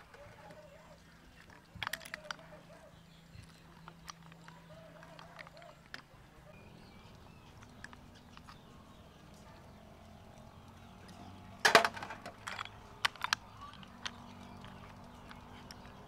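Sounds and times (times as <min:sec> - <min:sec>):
snail shells clacking in metal colander: 0:11.6 - 0:15.9.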